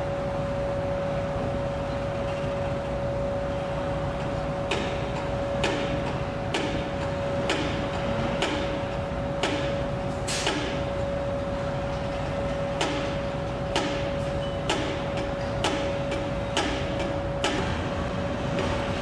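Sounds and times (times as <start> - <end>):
sharp knocks: 14.7 - 17.8.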